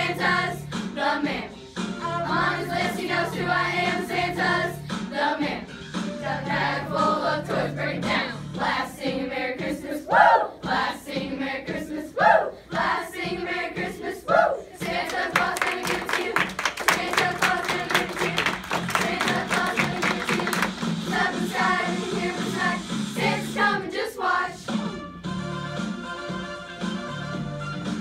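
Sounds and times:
children's choir singing: 0.0 - 24.6
rhythmic clapping: 0.0 - 25.1
group vocal calls: 10.1 - 10.6, 12.2 - 12.6.

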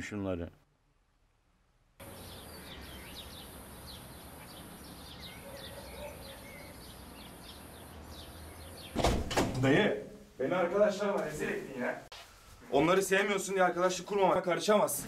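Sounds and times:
small birds chirping: 2.0 - 9.2.

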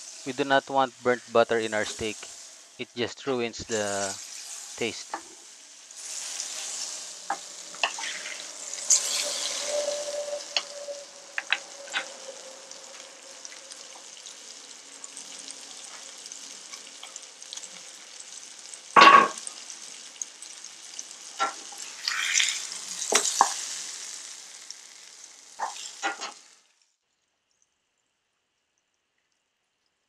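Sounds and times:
steak sizzling in skillet: 0.0 - 26.8
sharp pops and spatters: 7.2 - 9.1, 21.3 - 23.6.

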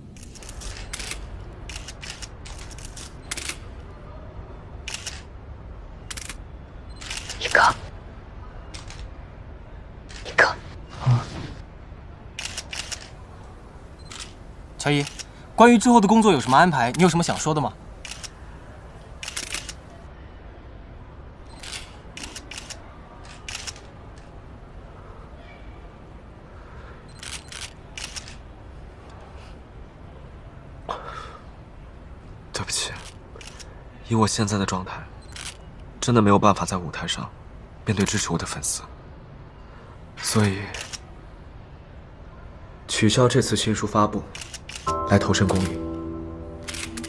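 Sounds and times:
low background hum: 0.0 - 47.0
camera shutters clicking: 0.1 - 3.6, 12.4 - 13.2, 19.2 - 19.9, 27.2 - 28.4, 40.4 - 41.0, 44.4 - 44.9, 46.6 - 47.0.

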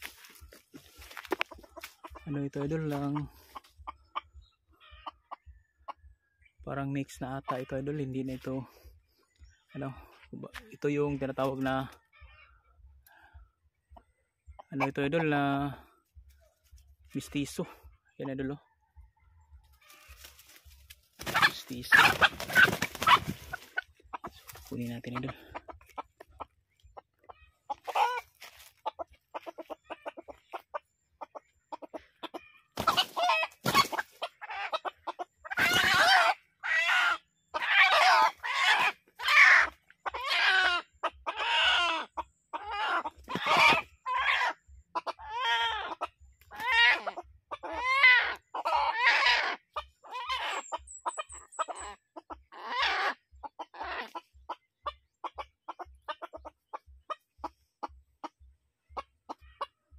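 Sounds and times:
rooster squawking in alarm: 21.2 - 23.4, 35.5 - 44.6, 45.2 - 50.6, 52.6 - 53.2.

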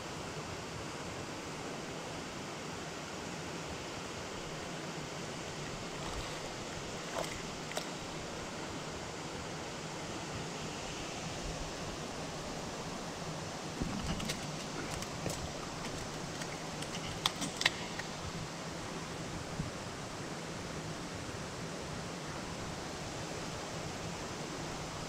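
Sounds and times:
rocky stream rushing: 4.2 - 19.4.

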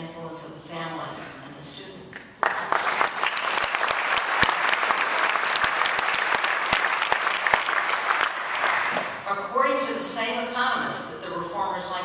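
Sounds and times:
audience applauding: 2.4 - 9.2.

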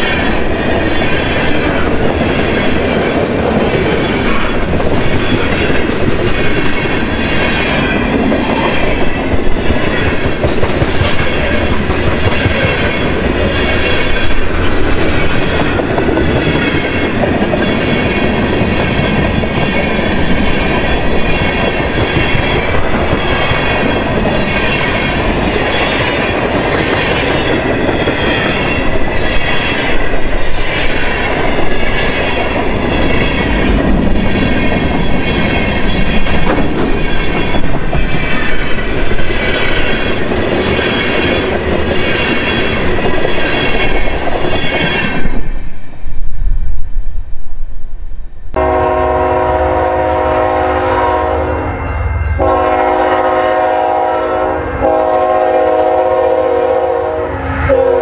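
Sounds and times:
wheels clickety-clack over joints: 0.0 - 45.6
train wheels rumbling on rail: 0.0 - 58.0.

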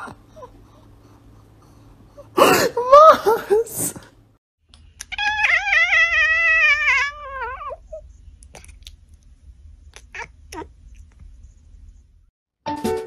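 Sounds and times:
cat meowing: 5.0 - 8.0, 10.0 - 10.7.

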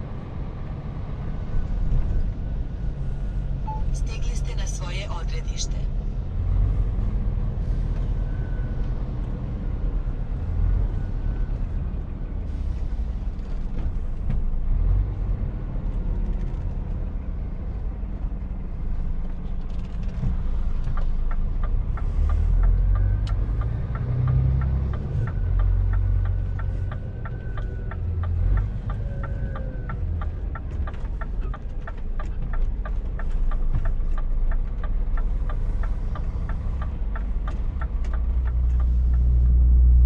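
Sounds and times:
truck engine and tyres rumbling: 0.0 - 40.0
turn indicator ticking: 20.3 - 40.0.

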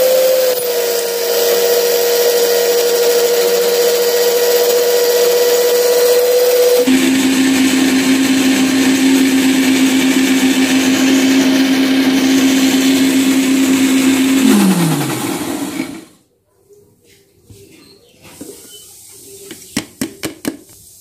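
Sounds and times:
motor winding down: 0.0 - 16.1
mixer grinder running: 0.0 - 16.2.

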